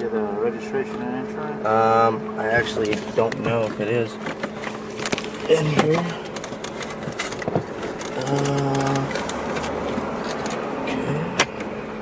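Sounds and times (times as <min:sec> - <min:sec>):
rummaging clicks and knocks: 0:02.8 - 0:10.7.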